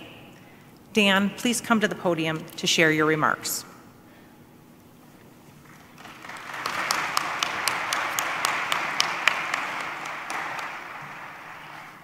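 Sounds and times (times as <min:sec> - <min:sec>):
audience applauding: 0:05.6 - 0:12.0
close individual claps: 0:05.6 - 0:12.0.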